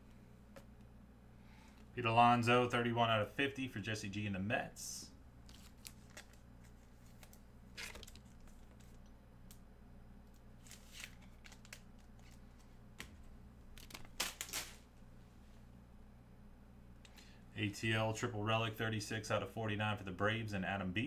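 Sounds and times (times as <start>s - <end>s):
steady low hum: 0.0s - 21.0s
cards and packaging rustling: 5.4s - 9.0s, 10.3s - 13.1s, 13.7s - 14.8s.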